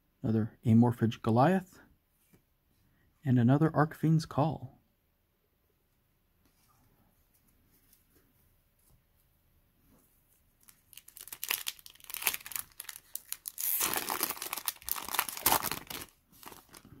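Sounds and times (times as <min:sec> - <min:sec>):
foil wrapper crinkling: 0:10.6 - 0:17.0.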